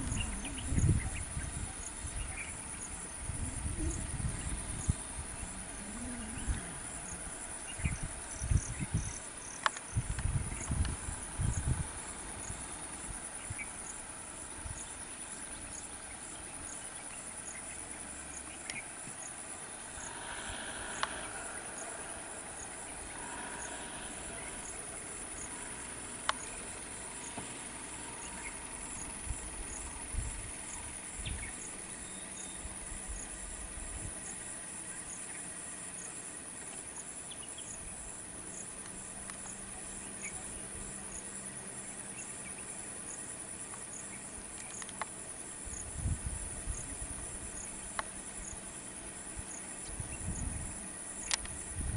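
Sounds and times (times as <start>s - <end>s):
insects buzzing: 0.0s - 51.9s
pulsing insect trill: 0.0s - 51.9s
faint clicks: 9.6s - 11.0s, 18.4s - 19.2s, 20.9s - 21.2s, 44.5s - 45.2s, 51.2s - 51.6s.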